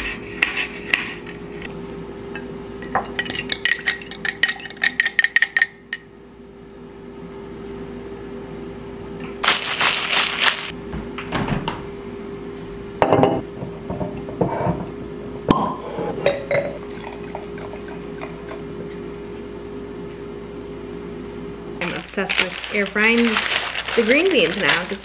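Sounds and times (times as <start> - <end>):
faint steady hum: 12.1 - 25.0
glass clinks on countertop: 13.0 - 13.4
wine pouring into a glass: 16.6 - 18.6.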